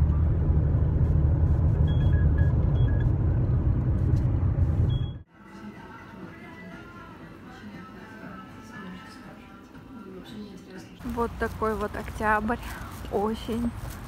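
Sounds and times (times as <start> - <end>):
car road rumble: 0.0 - 5.2.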